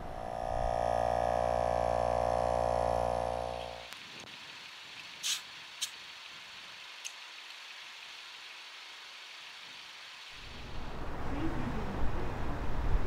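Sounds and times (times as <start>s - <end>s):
air compressor electric drone: 0.0s - 4.0s.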